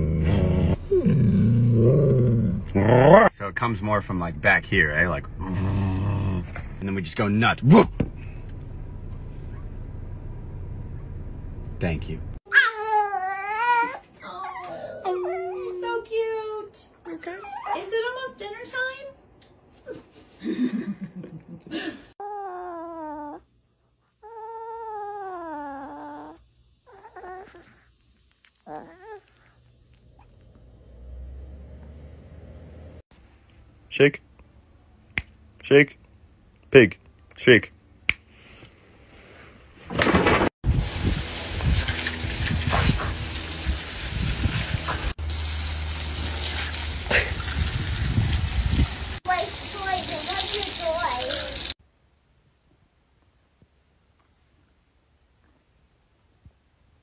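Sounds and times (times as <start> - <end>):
rough low noise: 1.1 - 12.4
small dog yipping: 12.5 - 15.8, 17.0 - 18.0, 24.2 - 27.9, 28.5 - 29.6
small dog howling: 22.2 - 23.4, 24.2 - 27.9, 28.6 - 29.5
hose spraying onto wet concrete: 40.7 - 51.8.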